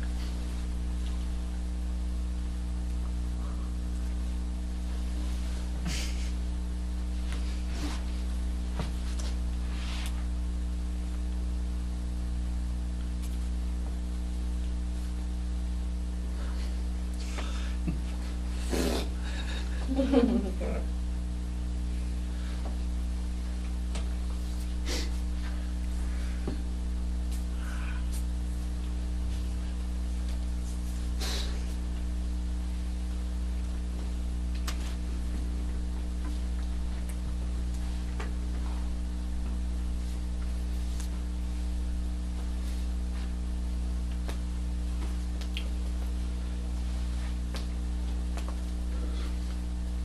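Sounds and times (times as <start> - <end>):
low electrical hum: 0.0 - 50.0
hiss: 31.2 - 31.6.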